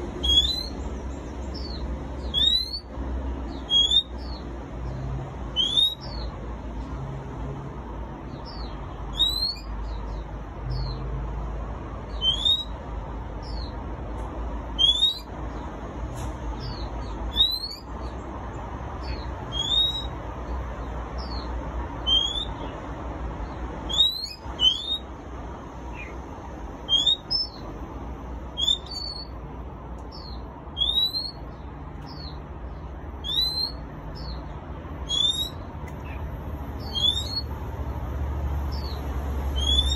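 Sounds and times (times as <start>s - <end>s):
bird giving rising whistle: 2.3s - 2.8s, 19.5s - 20.1s, 28.6s - 29.3s, 30.8s - 31.4s, 35.1s - 35.6s, 36.8s - 37.4s, 39.6s - 39.9s.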